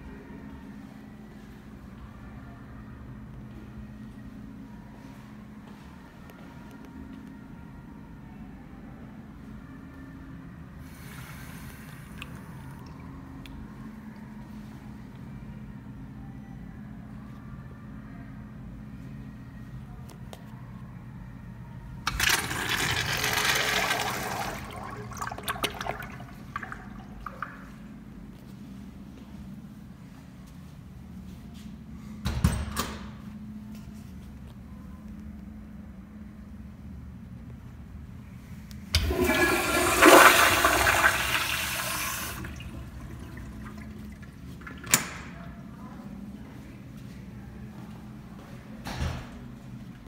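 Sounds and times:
urinal flushing water rush: 0:22.1 - 0:27.8, 0:39.0 - 0:45.4
drain gurgles: 0:22.2 - 0:27.8, 0:40.6 - 0:45.0.

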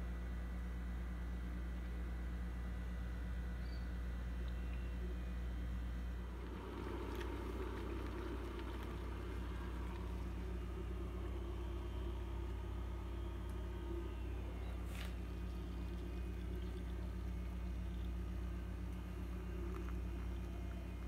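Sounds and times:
steady low hum: 0:00.0 - 0:21.0
faint rumble: 0:02.4 - 0:21.0.

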